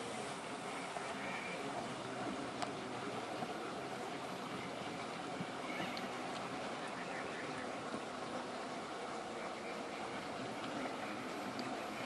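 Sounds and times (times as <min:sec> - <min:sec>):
faint ticks of tyres on stone: 0:01.8 - 0:03.5.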